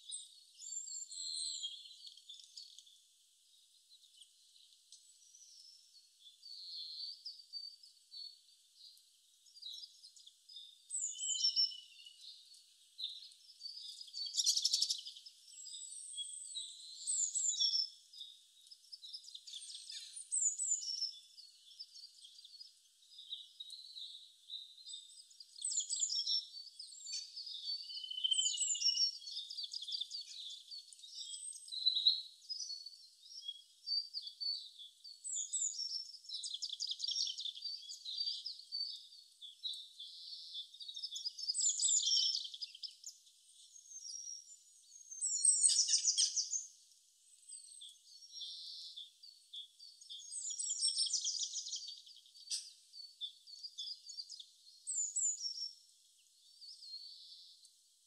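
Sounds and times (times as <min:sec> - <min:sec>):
birds chirping and trilling: 0:00.0 - 0:57.8.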